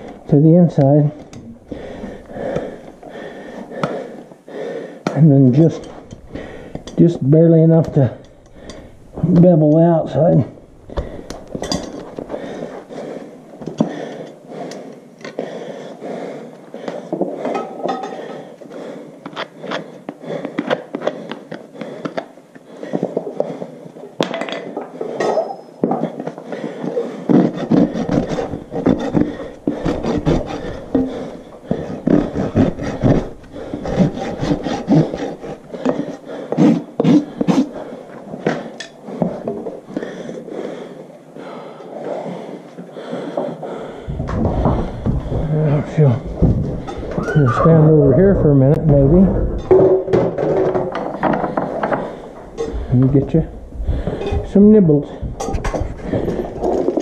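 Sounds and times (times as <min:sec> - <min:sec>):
rasp filing horse hoof: 0:25.8 - 0:39.7.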